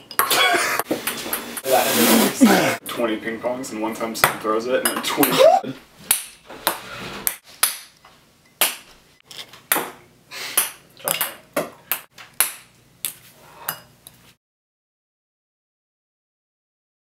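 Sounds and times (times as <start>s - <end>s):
ping-pong balls bouncing: 0.0s - 1.4s, 10.6s - 12.7s.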